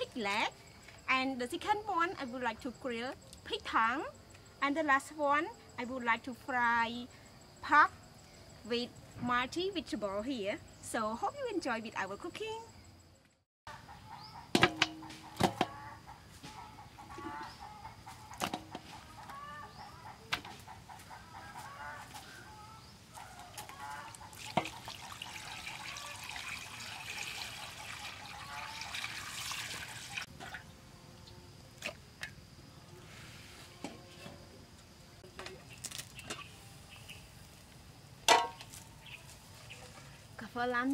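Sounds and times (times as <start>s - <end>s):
chickens clucking: 13.7s - 24.8s
meat knocking on metal pot: 14.5s - 15.8s.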